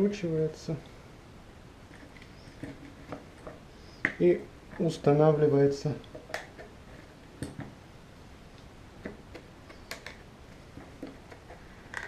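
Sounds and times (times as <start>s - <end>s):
plastic parts clicking: 9.0s - 10.2s, 10.8s - 12.0s.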